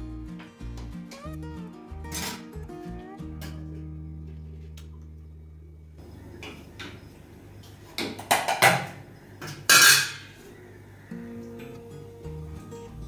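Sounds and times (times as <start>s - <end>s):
metal pots and utensils clanking: 8.2s - 10.4s.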